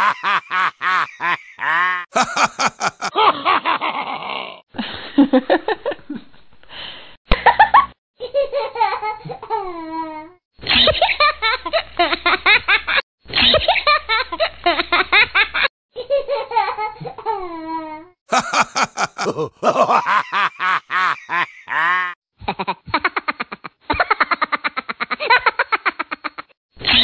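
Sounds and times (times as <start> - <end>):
high-pitched laughter: 0.0 - 4.3, 18.3 - 27.0.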